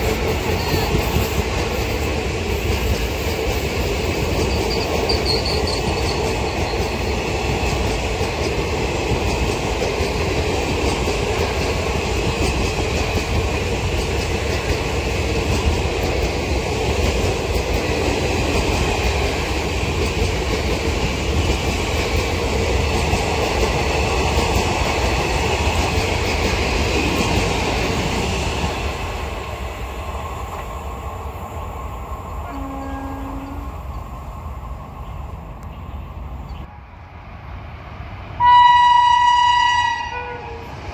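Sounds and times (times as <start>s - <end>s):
train wheels rumbling on rails: 0.0s - 40.9s
train horn: 32.4s - 33.8s, 38.4s - 40.8s.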